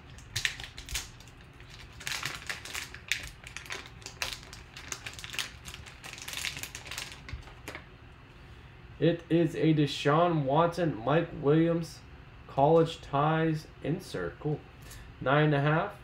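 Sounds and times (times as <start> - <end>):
foil pack crinkling and tearing: 0.0 - 7.8.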